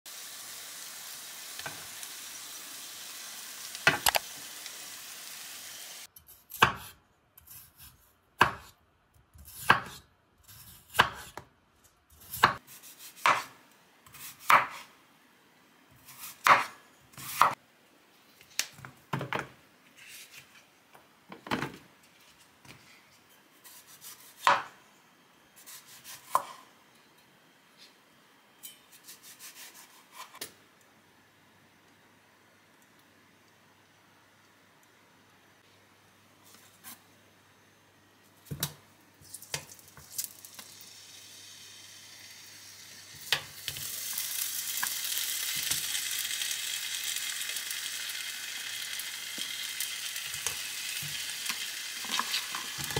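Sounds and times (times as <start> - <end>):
meat sizzling in pan: 0.1 - 6.1, 40.0 - 52.9.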